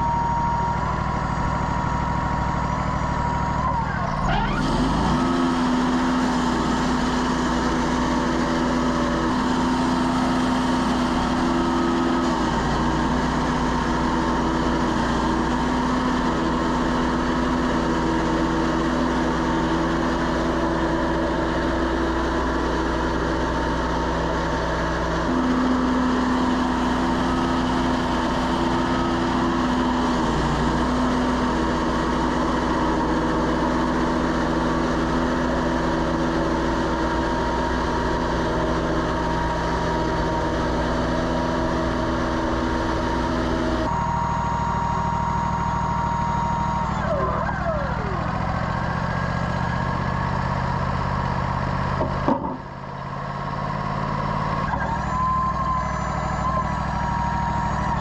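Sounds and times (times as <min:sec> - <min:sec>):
sawmill engine running: 0:00.0 - 0:58.0.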